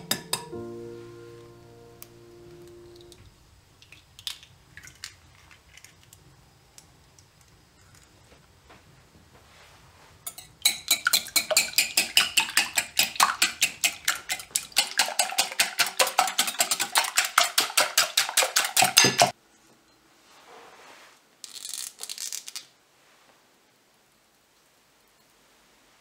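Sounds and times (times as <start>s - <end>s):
utensil clinking against glass bowl: 10.3s - 19.3s.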